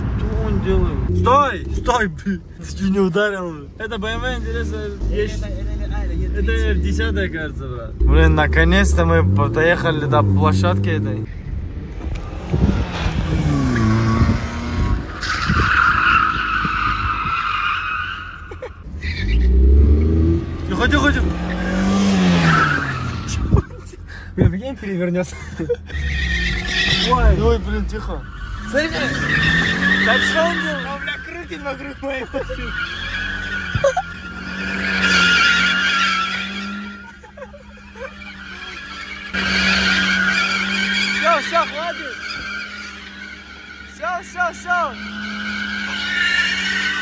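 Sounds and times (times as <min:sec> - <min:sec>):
car engine: 0:00.0 - 0:47.0
tyres squealing: 0:15.0 - 0:24.0, 0:24.8 - 0:47.0.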